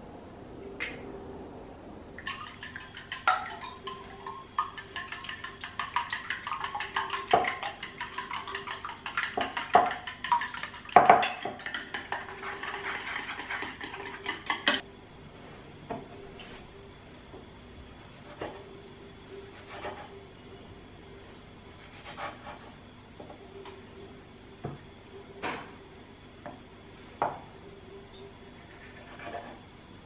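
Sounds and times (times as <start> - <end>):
chopsticks beating eggs in bowl: 2.2 - 14.8.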